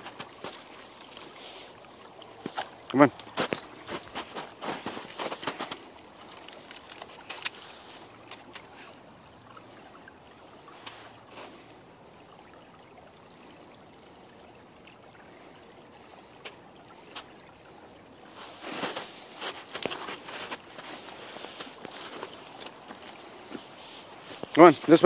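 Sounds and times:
stream running: 0.0 - 25.0
snow crunching: 2.4 - 8.2, 18.3 - 25.0.

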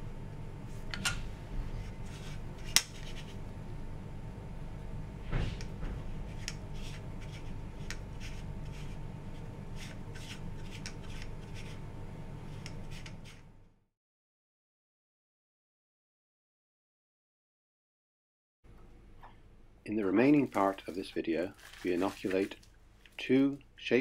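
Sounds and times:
steady low hum: 0.0 - 13.8, 18.7 - 24.0.

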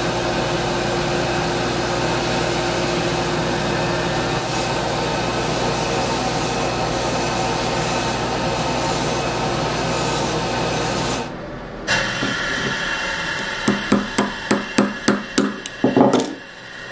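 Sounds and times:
belt grinder sanding wood: 0.0 - 11.3.

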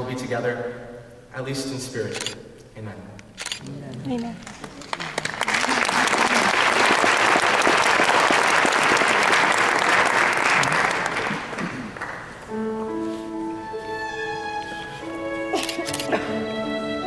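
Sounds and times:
audience applauding: 4.4 - 12.5
instrumental music with held notes: 12.5 - 17.0.

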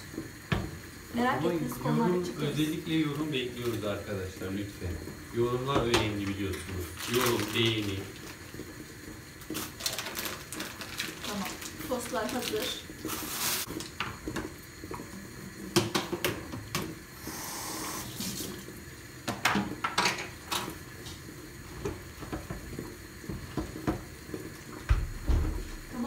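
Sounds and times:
tap running into sink: 0.2 - 0.9, 4.8 - 7.8, 13.0 - 17.0, 18.1 - 21.2, 21.8 - 26.0
low thump: 24.9 - 25.9
plastic container knocking: 24.9 - 25.9.

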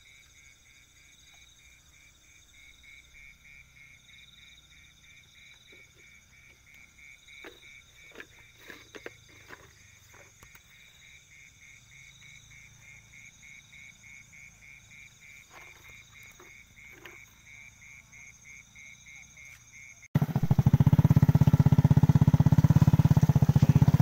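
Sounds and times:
high-pitched insect trills: 0.0 - 24.0
frog call pulsing: 2.5 - 20.7.

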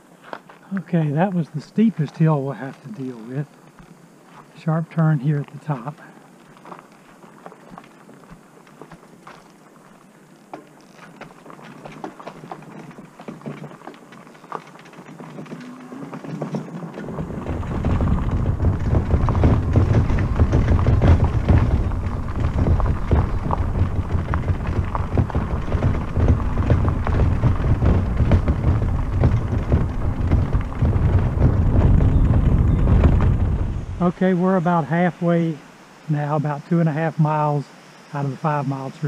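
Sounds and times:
tyres crunching on gravel: 0.0 - 39.0
wind buffeting microphone: 14.8 - 35.0.

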